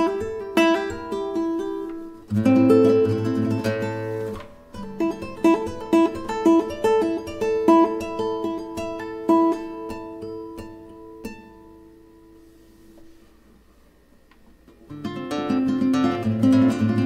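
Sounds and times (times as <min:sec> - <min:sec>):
flamenco guitar playing: 0:00.0 - 0:12.5, 0:14.8 - 0:17.0.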